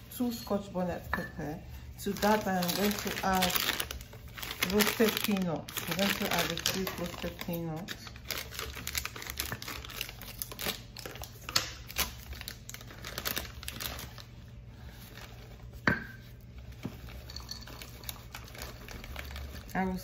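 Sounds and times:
packet crinkling and rustling: 0:02.0 - 0:15.8, 0:16.5 - 0:20.0
small crackles: 0:17.0 - 0:20.0.

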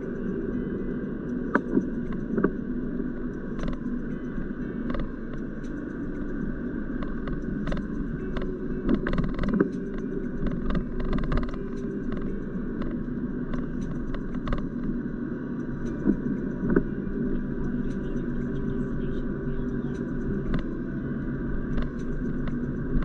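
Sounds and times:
car road and engine rumble: 0:00.0 - 0:23.0.

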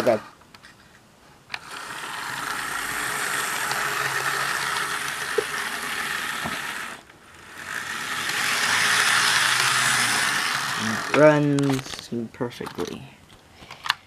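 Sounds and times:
model train motor whirring: 0:01.5 - 0:11.9
wheels rolling on rails: 0:01.6 - 0:12.0.

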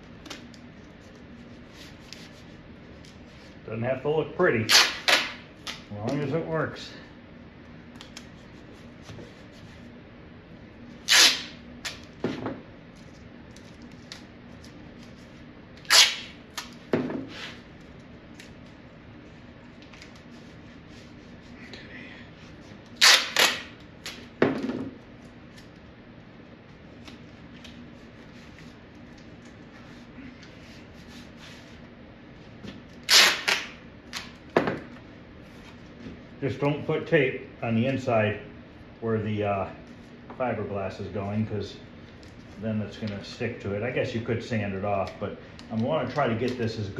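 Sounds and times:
masking tape ripping off roll: 0:04.6 - 0:05.8, 0:11.0 - 0:12.1, 0:15.8 - 0:17.6, 0:22.8 - 0:24.3, 0:32.9 - 0:34.4
tape strip torn and pressed down: 0:04.6 - 0:05.9, 0:11.0 - 0:12.2, 0:15.8 - 0:17.6, 0:22.8 - 0:24.3, 0:32.8 - 0:34.4.

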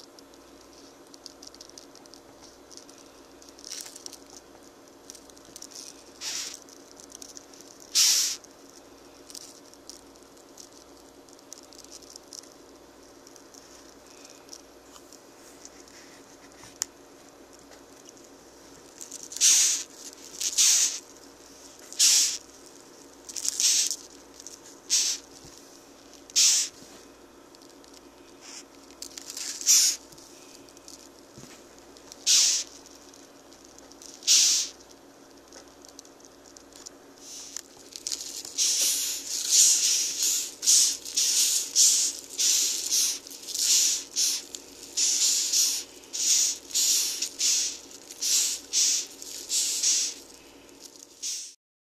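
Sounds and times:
beetles hissing: 0:05.2 - 0:10.0, 0:19.0 - 0:22.6, 0:23.3 - 0:25.4, 0:26.3 - 0:26.8, 0:28.4 - 0:31.1, 0:32.0 - 0:33.3, 0:34.0 - 0:34.8, 0:37.2 - 0:51.6.

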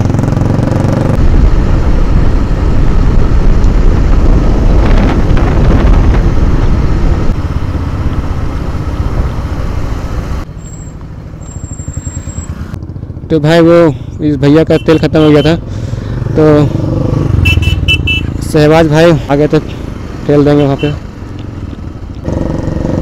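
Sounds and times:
motorcycle engine running: 0:00.0 - 0:09.7, 0:11.0 - 0:14.2, 0:14.8 - 0:23.0
wind rush over microphone: 0:01.2 - 0:07.5.

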